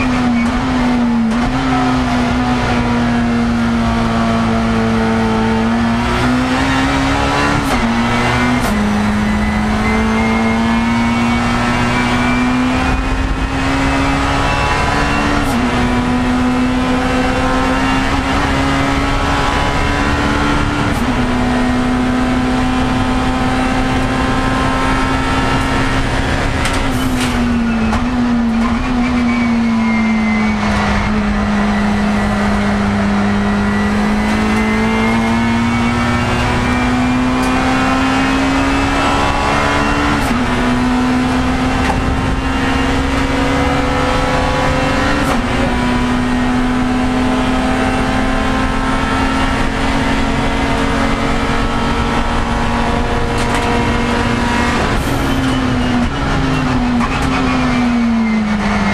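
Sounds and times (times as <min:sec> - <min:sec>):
race car engine running hard: 0:00.0 - 0:58.9.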